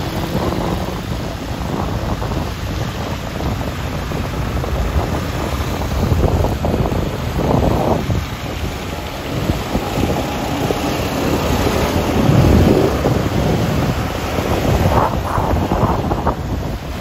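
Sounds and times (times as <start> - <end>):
low rumble: 0.0 - 17.0
traffic and road noise: 0.0 - 17.0
wind buffeting microphone: 0.0 - 17.0.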